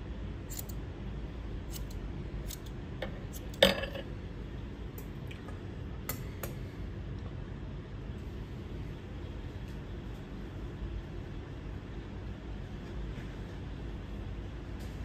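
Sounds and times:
metallic clicks of hair-cutting tools: 0:01.7 - 0:02.8.

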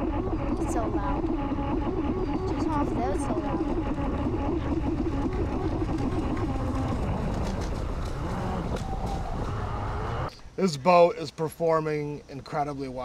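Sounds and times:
wavering motor whine: 0:00.0 - 0:10.3.

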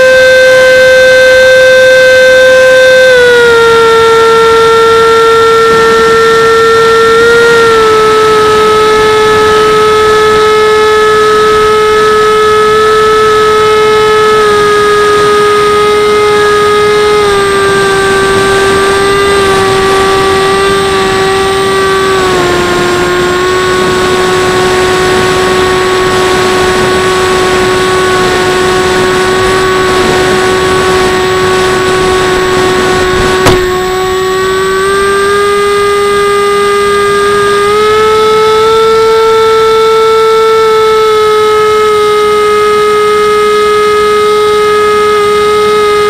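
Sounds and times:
electric motor and propeller whining: 0:00.0 - 0:46.0
wind noise: 0:02.4 - 0:38.4.

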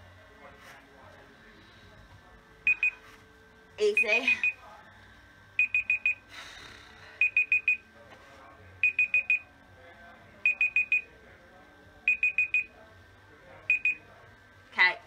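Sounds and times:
digital alarm beeping: 0:02.7 - 0:03.0, 0:03.9 - 0:04.6, 0:05.6 - 0:06.2, 0:07.2 - 0:07.8, 0:08.8 - 0:09.5, 0:10.4 - 0:11.1, 0:12.1 - 0:12.7, 0:13.7 - 0:14.0.

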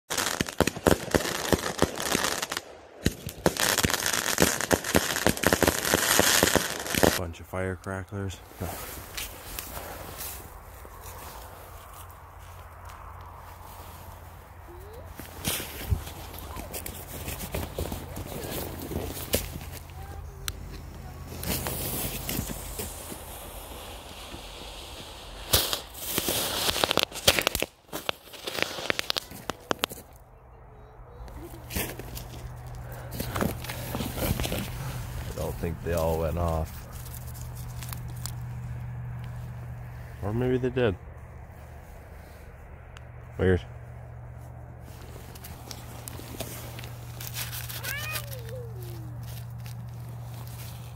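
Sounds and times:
fireworks bursting: 0:00.1 - 0:07.2, 0:14.9 - 0:30.2
sharp crackling pops: 0:00.1 - 0:07.2, 0:14.8 - 0:30.3, 0:31.2 - 0:39.9, 0:45.0 - 0:50.9.

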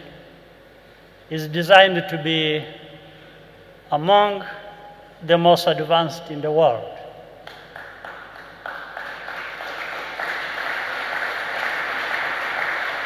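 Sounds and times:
audience applauding: 0:07.5 - 0:13.0.

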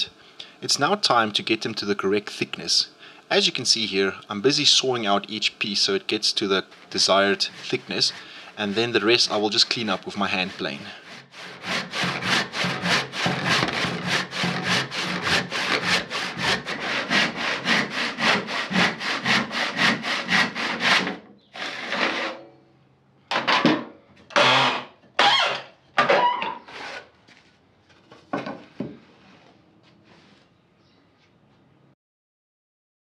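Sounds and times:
saw scraping wood: 0:06.2 - 0:22.5, 0:24.4 - 0:27.1
handsaw sawing wood: 0:06.4 - 0:22.4.

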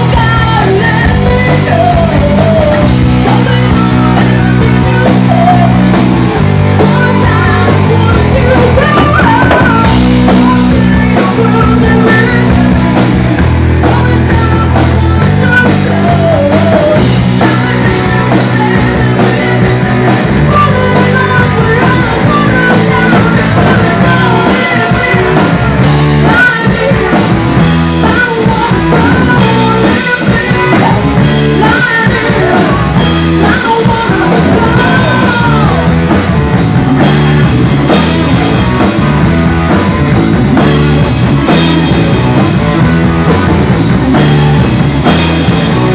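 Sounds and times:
woman singing into microphone: 0:00.0 - 0:36.1
drum kit: 0:00.0 - 0:45.9
electric guitar: 0:00.0 - 0:45.9.

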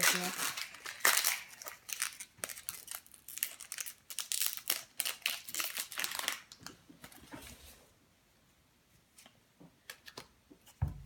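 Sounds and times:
foil wrapper crinkling: 0:00.0 - 0:06.7.

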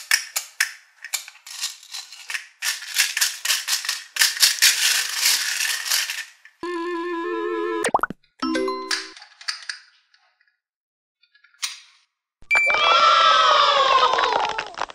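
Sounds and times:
plastic beads rattling in tray: 0:01.1 - 0:06.6
electronic musical tune: 0:06.6 - 0:09.1.

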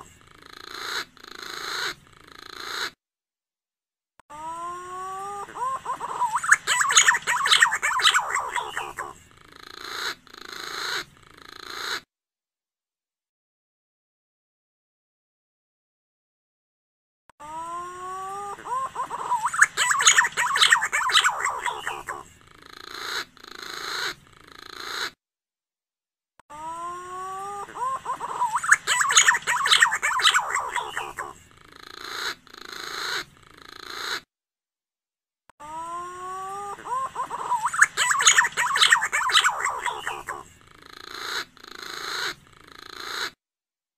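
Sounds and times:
pigeon call warbling whistles: 0:27.8 - 0:34.2.

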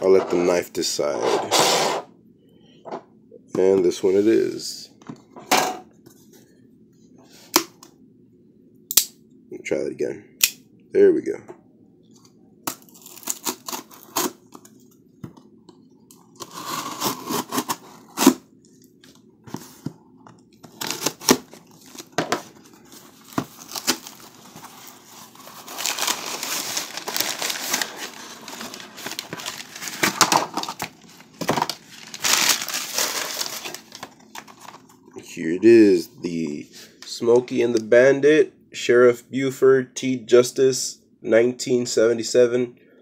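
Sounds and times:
packing tape tearing: 0:12.7 - 0:14.7, 0:16.4 - 0:18.4, 0:20.7 - 0:22.2, 0:23.0 - 0:34.8
paper and plastic crinkling: 0:16.2 - 0:18.4, 0:20.6 - 0:35.0.

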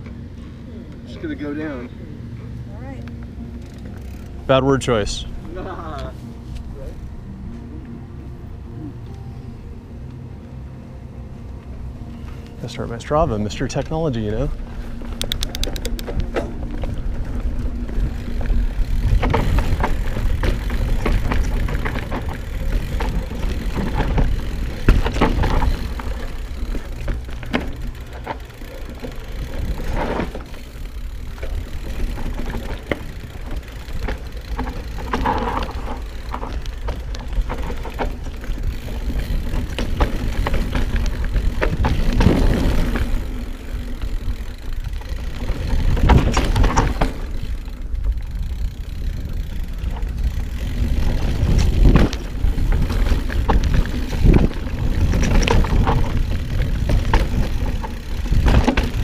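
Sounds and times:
tyres on dirt: 0:12.2 - 0:59.0
bike clattering over bumps: 0:15.0 - 0:59.0
wind rushing over microphone: 0:49.2 - 0:59.0.

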